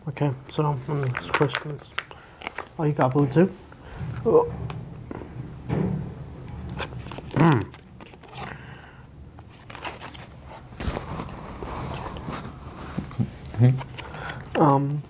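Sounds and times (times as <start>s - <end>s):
cards and paper rustling: 0.5s - 3.2s, 6.8s - 8.6s, 9.4s - 15.0s.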